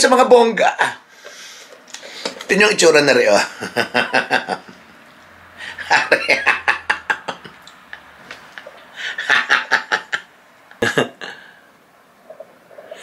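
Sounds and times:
man laughing: 3.4s - 4.8s, 5.7s - 7.6s, 8.5s - 11.5s.

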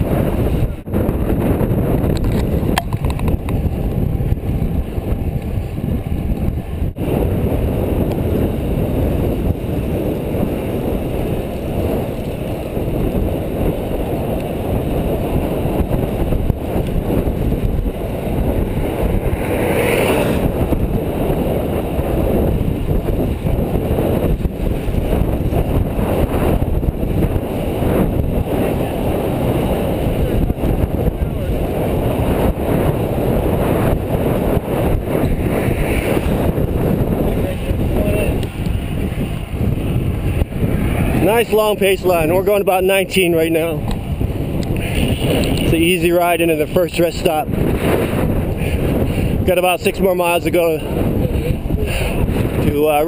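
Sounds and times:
bicycle tyre noise: 0.0s - 53.0s
wind rushing over microphone: 0.0s - 53.0s.

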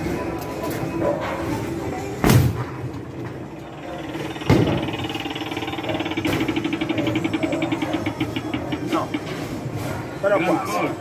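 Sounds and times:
steady electronic tone: 3.5s - 9.0s
rapid electronic ticking: 3.6s - 9.3s.

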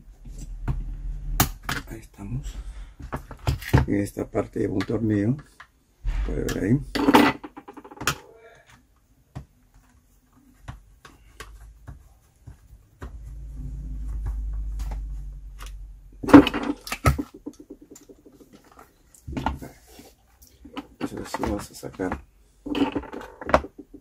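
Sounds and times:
low rumble: 6.0s - 7.0s, 13.1s - 16.3s.

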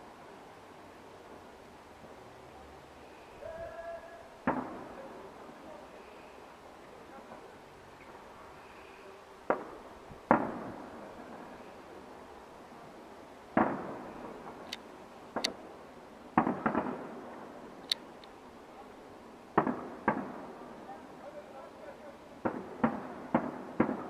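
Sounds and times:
sharp high firework cracks: 4.4s - 5.2s, 9.4s - 11.6s, 13.5s - 15.7s, 16.3s - 18.2s, 19.5s - 20.8s, 22.4s - 24.0s
firework booms with rolling echo: 4.4s - 5.6s, 9.5s - 11.6s, 13.5s - 14.6s, 15.3s - 17.8s, 19.5s - 21.0s, 22.4s - 24.0s.

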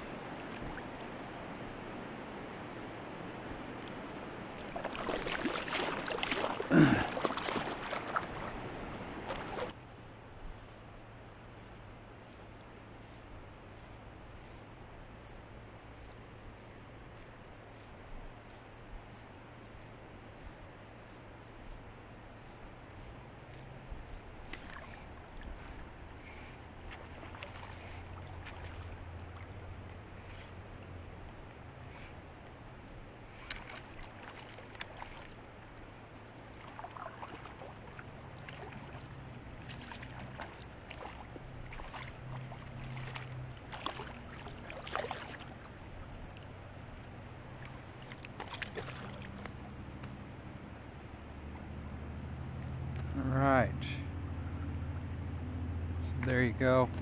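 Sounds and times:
water splashing and sloshing: 0.0s - 9.8s, 23.5s - 31.7s, 33.2s - 50.8s
fish splashing: 4.5s - 9.8s, 24.4s - 30.5s, 33.3s - 35.7s, 36.5s - 50.1s.

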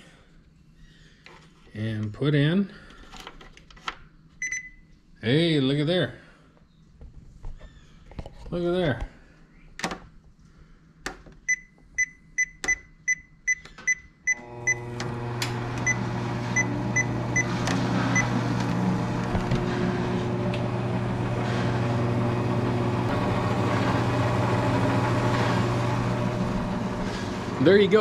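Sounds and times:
treadmill console beeping: 4.4s - 4.8s, 11.5s - 15.2s, 15.8s - 19.7s
treadmill motor humming: 14.3s - 28.0s.

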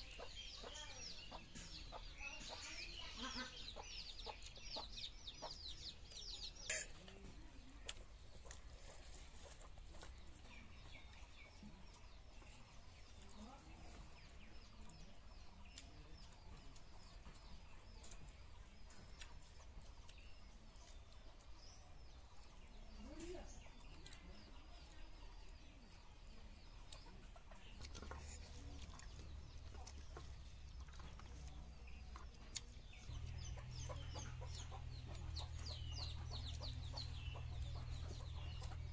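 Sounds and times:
hen clucking: 0.0s - 12.5s, 26.8s - 38.9s
chicks peeping: 0.0s - 38.9s.

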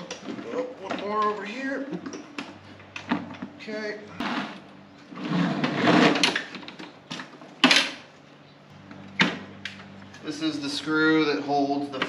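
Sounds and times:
mower scraping and rattling: 4.1s - 6.8s.

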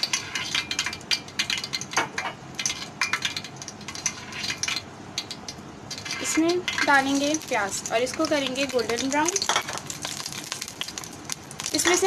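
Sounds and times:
oil crackling in a pot: 0.0s - 12.0s.

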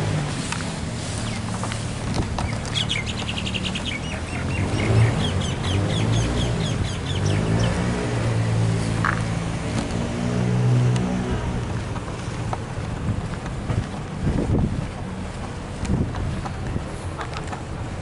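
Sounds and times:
vehicle engine hum: 0.0s - 18.0s
small bird chirping: 2.4s - 7.8s.

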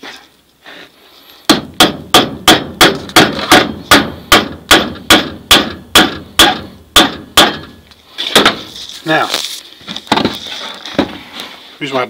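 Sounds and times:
hammer driving nail into wood: 1.5s - 8.6s.

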